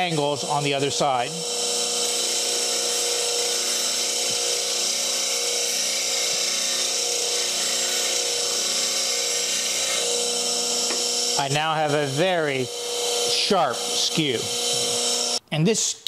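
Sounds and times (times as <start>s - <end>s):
bench grinder motor hum: 0.0s - 15.4s
chisel grinding hiss: 0.0s - 15.4s.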